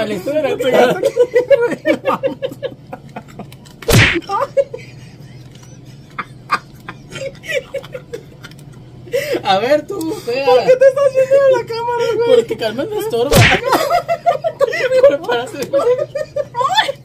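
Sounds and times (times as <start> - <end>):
people laughing: 0.2 - 3.6, 4.2 - 9.3, 12.0 - 17.0
hand slapping a face: 3.9 - 4.2, 13.3 - 13.7.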